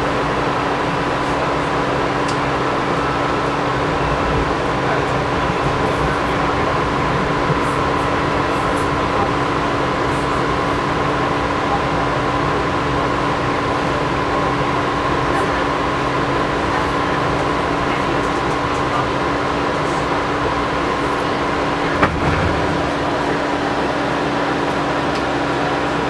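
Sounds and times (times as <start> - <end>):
rail car rumble: 0.0 - 26.0.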